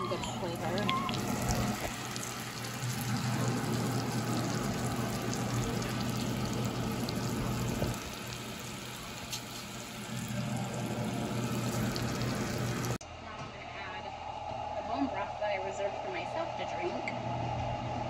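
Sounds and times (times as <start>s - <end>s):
low steady hum: 0.0s - 18.0s
chicken sizzling in a skillet: 0.4s - 13.0s.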